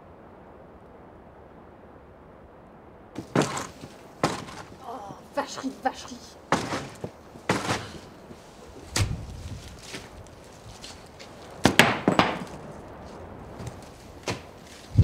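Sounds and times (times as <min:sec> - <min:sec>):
sharp knocking sounds: 0:03.2 - 0:05.7, 0:06.5 - 0:08.1, 0:11.6 - 0:12.5
footsteps on dead leaves: 0:03.2 - 0:15.0.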